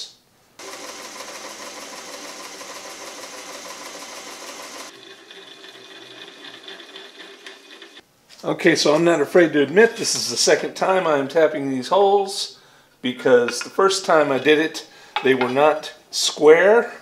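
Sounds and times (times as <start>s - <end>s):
drill press motor whine: 0.6s - 8.0s.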